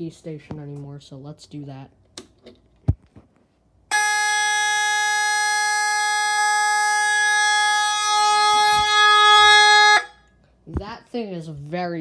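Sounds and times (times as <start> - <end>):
fire alarm horn buzzing: 3.9 - 10.3.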